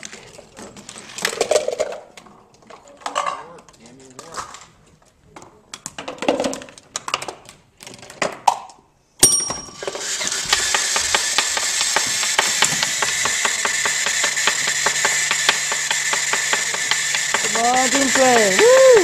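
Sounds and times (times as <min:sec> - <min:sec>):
rapid mechanical clicking and ratcheting: 0:09.8 - 0:19.0
steady mechanical whir: 0:09.8 - 0:19.0.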